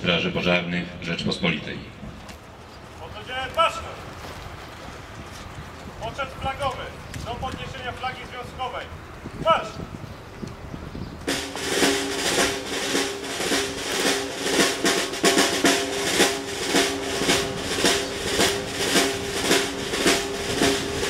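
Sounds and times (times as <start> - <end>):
marching drumbeats: 11.2 - 21.0
snare drum roll: 11.3 - 21.0.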